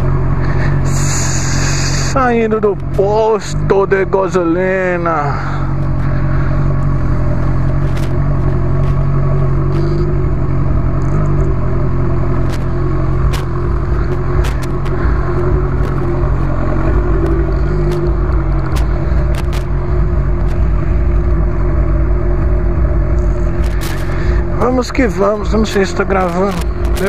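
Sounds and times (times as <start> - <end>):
motorcycle engine low revs: 5.4 - 27.0
scattered clicks: 5.8 - 10.2, 12.3 - 21.2, 23.1 - 24.2, 25.1 - 27.0.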